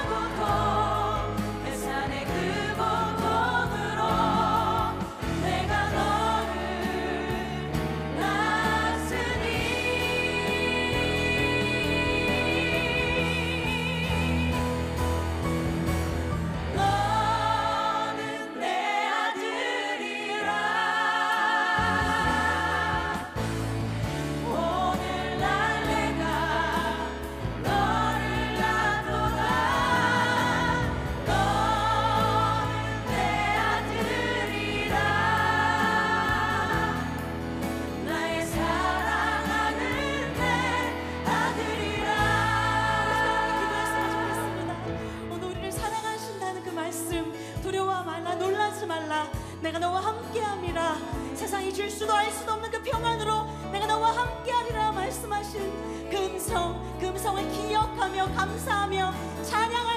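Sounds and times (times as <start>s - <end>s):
women singing slow melody: 0.0s - 14.8s, 16.8s - 23.5s, 24.4s - 37.4s, 38.0s - 59.9s
keyboard accompaniment: 0.0s - 48.7s.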